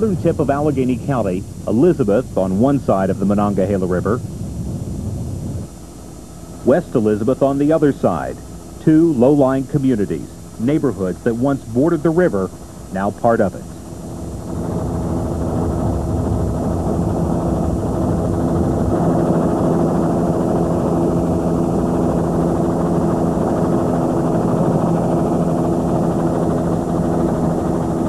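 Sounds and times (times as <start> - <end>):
helicopter engine and rotor drone: 0.0 - 28.0.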